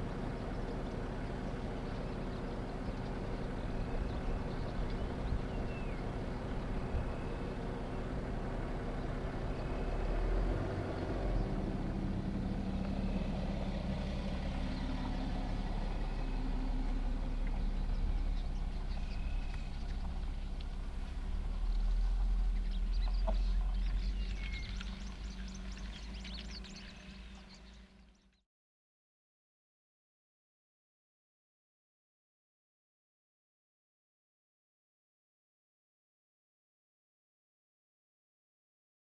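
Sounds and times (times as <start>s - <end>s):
vehicle engine idling: 0.0s - 28.4s.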